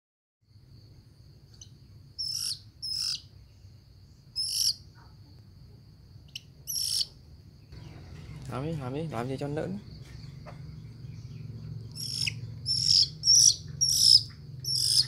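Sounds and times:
faint high insect whine: 0.4 - 15.0
magpie harsh rasping calls: 2.2 - 3.2, 4.4 - 4.8, 6.7 - 7.1, 11.9 - 15.0.

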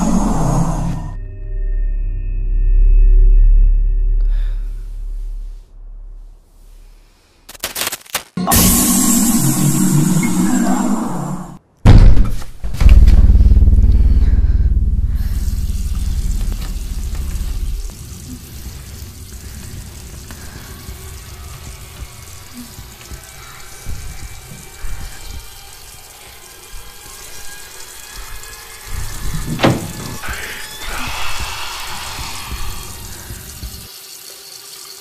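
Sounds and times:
deep rumbling drone: 0.0 - 7.1, 12.7 - 33.9
sharp hit: 8.4 - 10.8.

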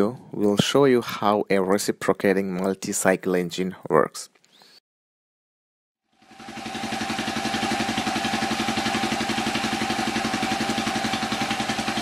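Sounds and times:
small engine idling: 6.0 - 12.0
steady engine whine: 6.2 - 12.0.

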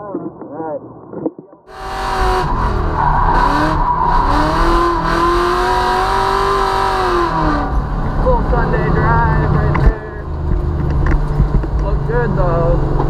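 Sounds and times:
tyre squeal: 1.7 - 5.7
car engine at high revs: 1.7 - 13.0.

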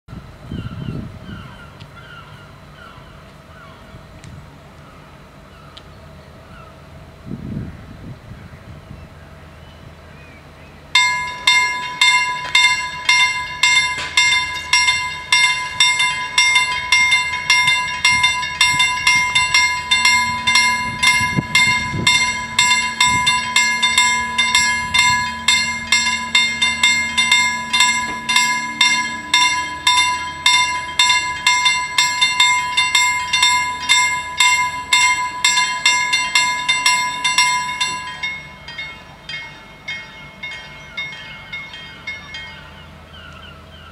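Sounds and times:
level crossing warning bells: 10.9 - 43.9.

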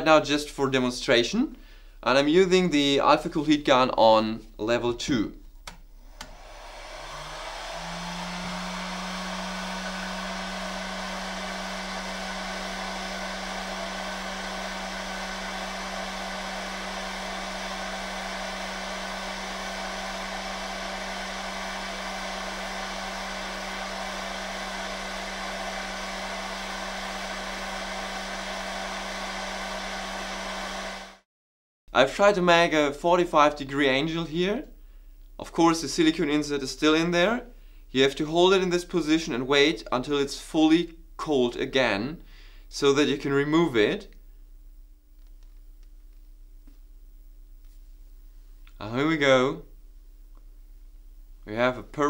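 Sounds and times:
hot-air gun fan humming: 5.6 - 31.2.

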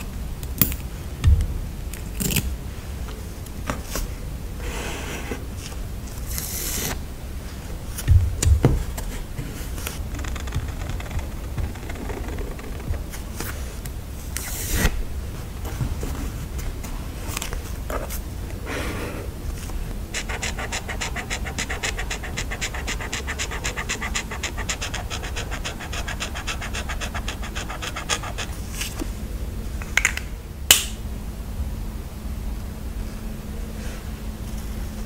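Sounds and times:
scratching of paper: 9.0 - 13.8, 20.1 - 29.0.

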